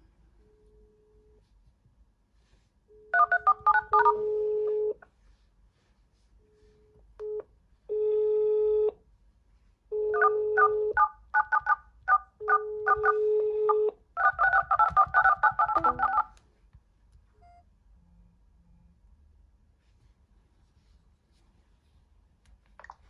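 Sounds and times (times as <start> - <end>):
phone ringback tone: 3.1 - 5.0, 12.8 - 16.3
keypad beeps: 14.4 - 16.3
falling run of tones: 14.8 - 16.2.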